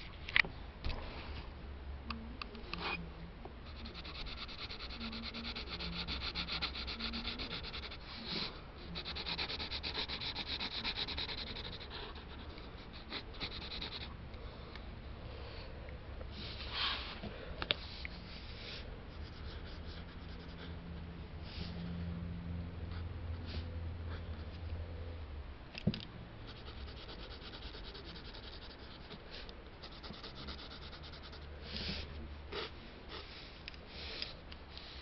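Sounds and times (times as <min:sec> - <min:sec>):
pencil scratching on paper: 0:03.7 - 0:14.1, 0:18.7 - 0:20.8, 0:26.4 - 0:29.2, 0:29.8 - 0:32.0.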